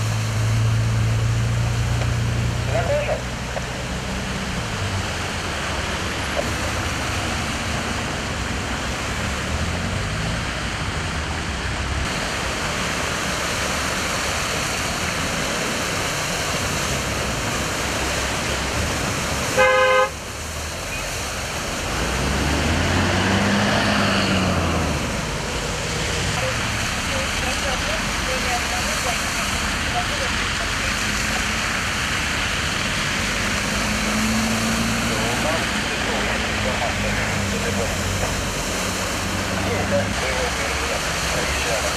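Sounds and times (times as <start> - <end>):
bus engine: 0.0 - 41.9
car engines running: 0.0 - 41.9
cars splashing through floodwater: 0.0 - 41.9
car horn honk: 19.5 - 20.2.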